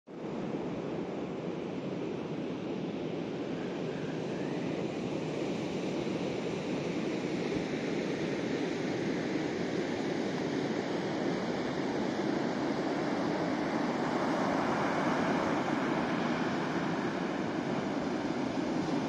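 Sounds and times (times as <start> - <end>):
wind: 0.0 - 19.0
surf breaking on beach: 12.4 - 19.0.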